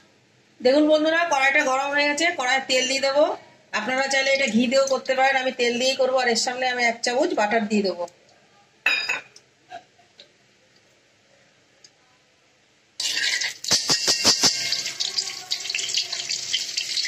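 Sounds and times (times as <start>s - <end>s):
butter sizzling in hot oil: 13.0s - 17.0s.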